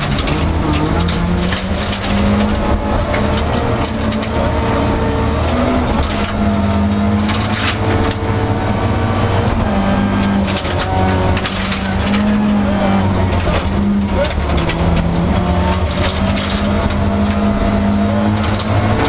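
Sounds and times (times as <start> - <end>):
gravel ticking against car: 0.0 - 8.5
rally car engine revving: 0.0 - 19.0.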